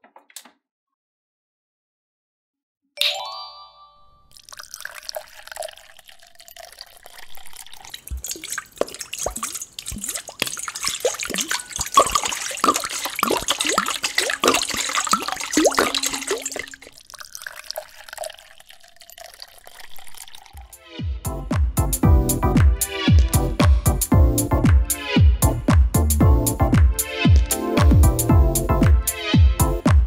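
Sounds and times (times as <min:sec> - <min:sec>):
water pouring into plastic tank: 0:04.3 - 0:20.8, 0:23.1 - 0:23.9, 0:27.3 - 0:28.2.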